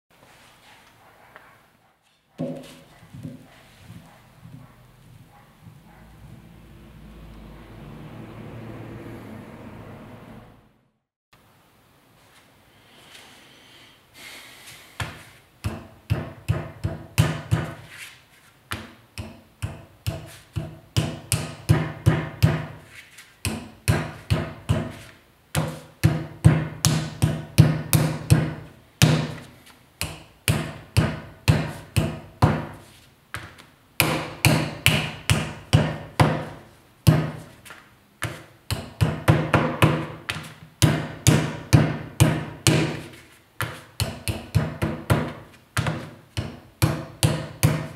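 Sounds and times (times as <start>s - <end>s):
wooden mallet pounding clay: 15.0s - 17.9s, 18.7s - 22.8s, 23.4s - 32.8s, 34.0s - 37.6s, 38.2s - 47.9s.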